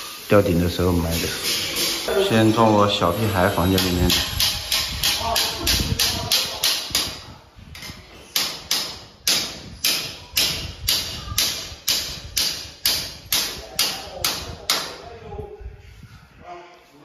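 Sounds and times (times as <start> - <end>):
hammer striking nails into metal: 8.3 - 14.9.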